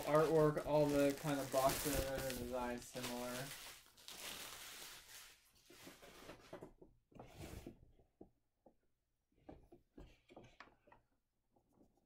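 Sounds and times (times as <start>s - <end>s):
plastic bag rustling: 0.0s - 5.9s.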